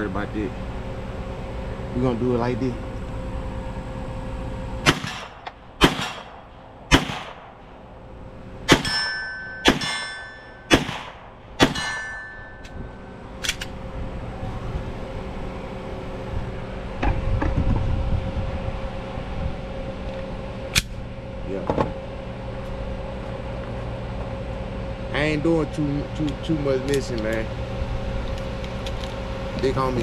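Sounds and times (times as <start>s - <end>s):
pistol shots: 4.8s - 7.6s, 8.7s - 12.1s
steel target clanging: 8.7s - 13.5s.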